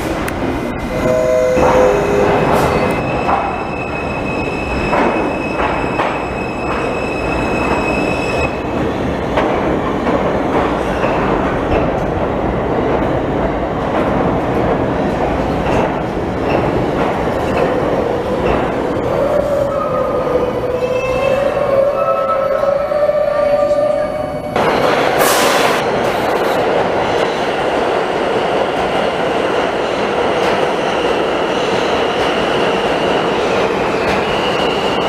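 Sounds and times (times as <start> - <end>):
train wheels rumbling and rattling: 0.0 - 20.8, 24.5 - 35.0
high wheel squeal: 0.9 - 8.5.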